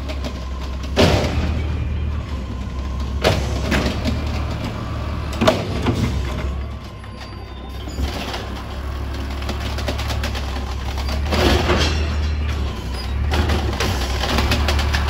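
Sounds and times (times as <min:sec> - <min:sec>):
truck engine humming: 0:00.0 - 0:15.0.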